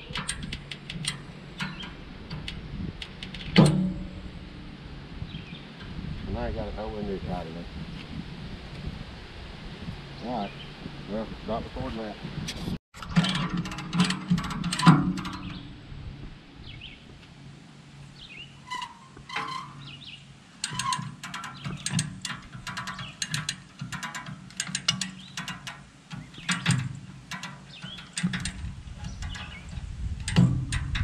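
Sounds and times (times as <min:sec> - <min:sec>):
ratchet clicking: 0:00.0 - 0:04.1, 0:20.6 - 0:31.0.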